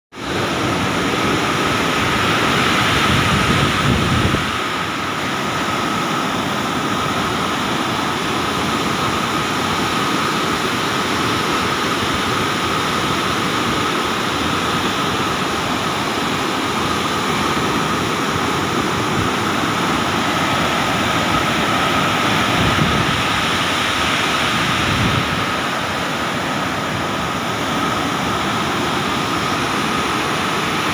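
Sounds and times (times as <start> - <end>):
rushing white water: 0.1 - 30.9.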